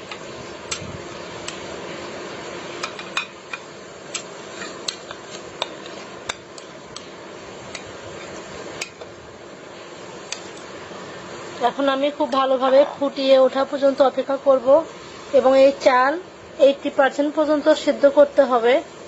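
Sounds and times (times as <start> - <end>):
steady low hiss: 0.0 - 19.0.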